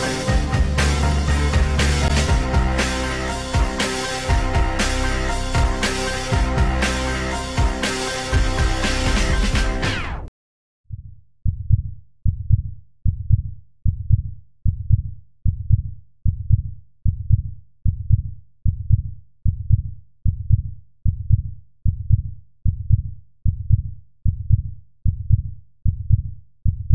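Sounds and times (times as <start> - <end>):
low heartbeat-like pulse: 0.0 - 2.8, 10.9 - 26.9.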